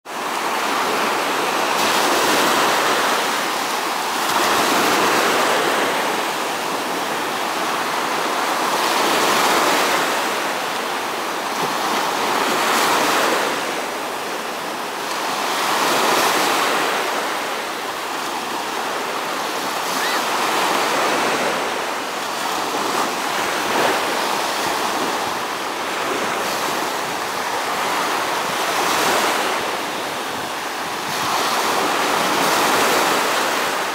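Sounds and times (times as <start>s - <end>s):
waves breaking on beach: 0.1s - 33.9s.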